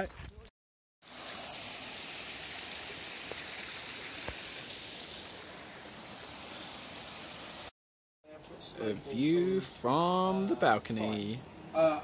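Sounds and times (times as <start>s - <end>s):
stream running over rocks: 1.0s - 7.7s.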